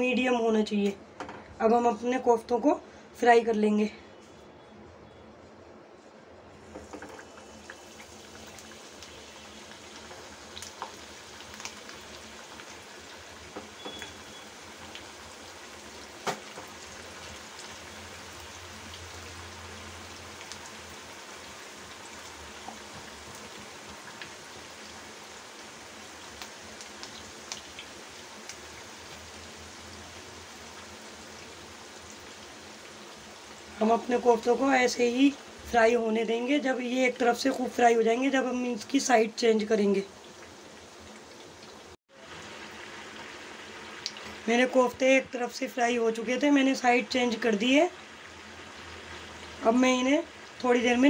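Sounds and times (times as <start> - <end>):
meatballs deep-frying in oil: 6.6 - 51.0
oil popping and crackling: 6.7 - 33.7, 40.2 - 44.4.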